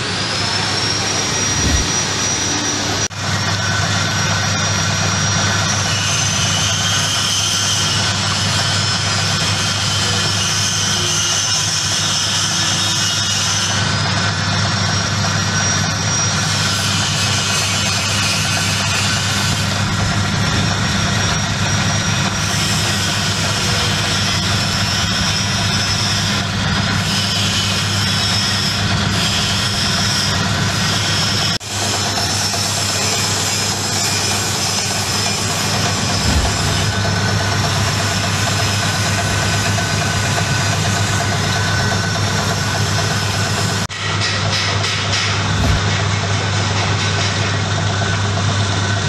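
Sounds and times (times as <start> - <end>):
low hum: 0.0 - 5.4, 34.9 - 43.0, 45.3 - 46.2
shelling machine droning: 0.0 - 49.0.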